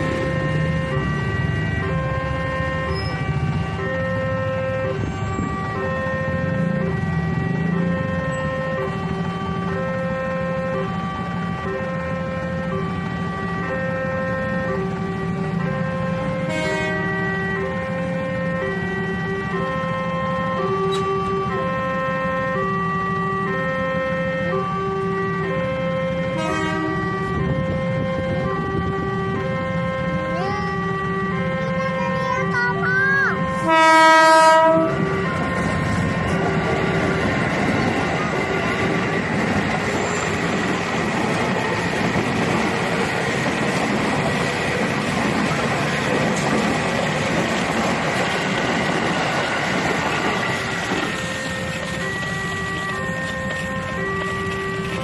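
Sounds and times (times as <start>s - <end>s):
idling traffic rumble: 0.0s - 33.7s, 34.6s - 55.0s
level crossing alarm two-tone: 51.2s - 55.0s.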